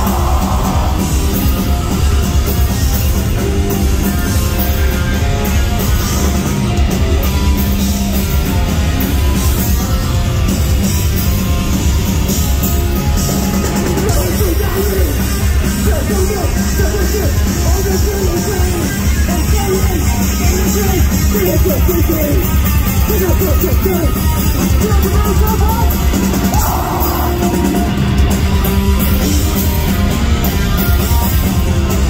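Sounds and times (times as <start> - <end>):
shouted vocals: 0.0 - 2.0, 24.8 - 27.8
bass guitar: 0.0 - 32.0
distorted guitars: 0.0 - 32.0
pounding drums: 0.0 - 32.0.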